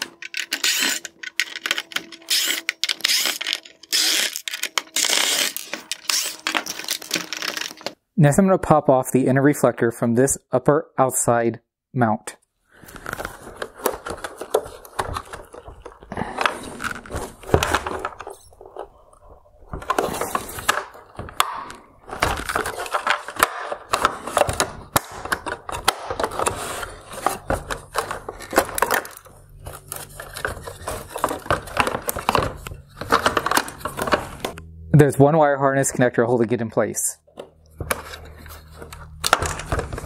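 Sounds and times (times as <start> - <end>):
plastic clicks and cracks: 0.0 - 8.0.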